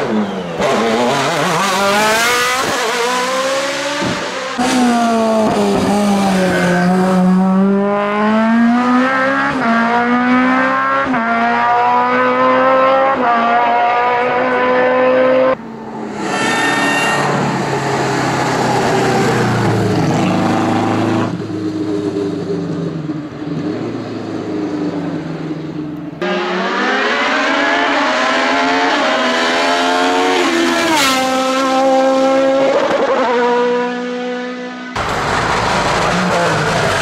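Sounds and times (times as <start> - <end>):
vintage racing car engine at full throttle: 0.0 - 16.3, 17.0 - 37.0
sports prototype engine shifting gears: 0.0 - 37.0.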